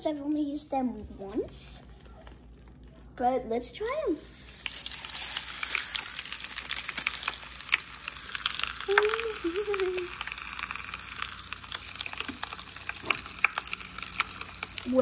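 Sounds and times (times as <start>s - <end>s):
bath crackles popping in water: 4.2s - 15.0s.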